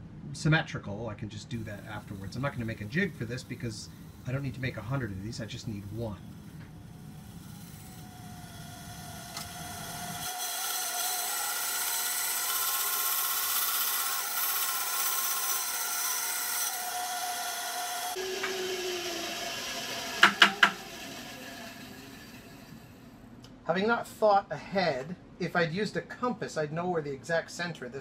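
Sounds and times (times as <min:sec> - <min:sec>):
saw blade cutting wood: 0:01.6 - 0:23.0
bandsaw motor whine: 0:01.6 - 0:23.3
sharp knocks: 0:20.2 - 0:20.8.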